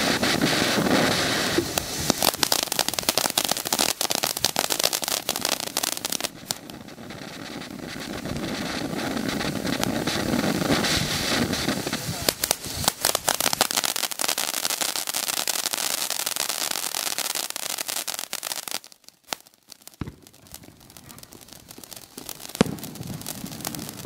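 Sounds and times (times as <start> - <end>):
firework fountain hissing and crackling: 0.0 - 24.0.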